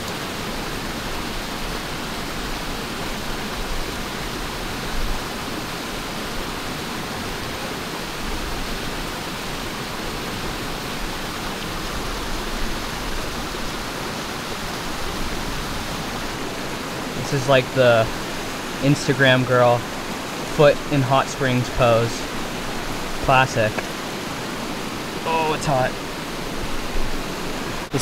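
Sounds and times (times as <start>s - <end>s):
river water rushing: 0.0s - 28.0s.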